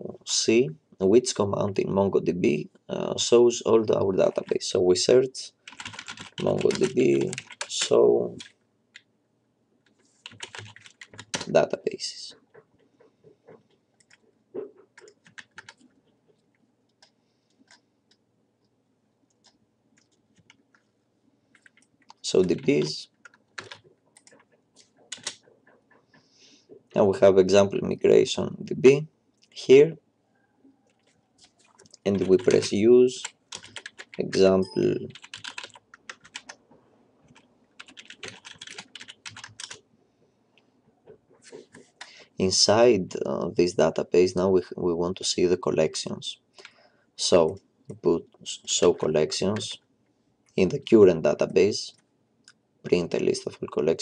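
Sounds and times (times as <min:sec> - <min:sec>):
keyboard and mouse clicking: 0:05.7 - 0:09.1, 0:10.2 - 0:11.5, 0:13.5 - 0:18.2, 0:21.6 - 0:26.0, 0:30.9 - 0:36.6, 0:37.3 - 0:39.8.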